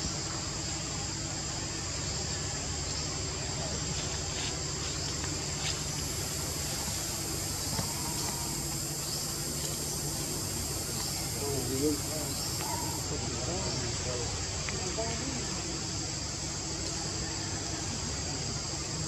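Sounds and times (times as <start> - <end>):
insects droning: 0.0 - 19.0
low background hum: 0.0 - 19.0.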